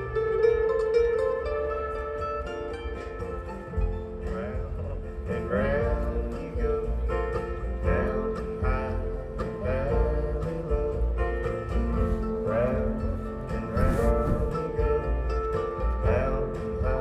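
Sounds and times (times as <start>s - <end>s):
acoustic guitar and plucked strings: 0.0s - 17.0s.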